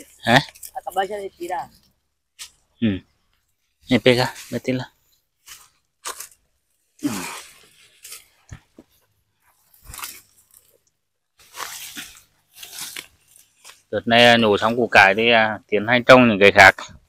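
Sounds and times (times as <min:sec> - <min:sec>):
radishes pulled from soil: 0:03.4 - 0:13.9.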